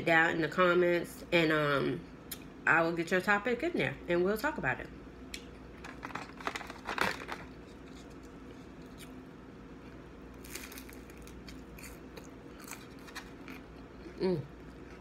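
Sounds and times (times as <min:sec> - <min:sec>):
close-mic chewing: 0:09.8 - 0:15.0
crunchy bites into spring roll: 0:10.3 - 0:13.8.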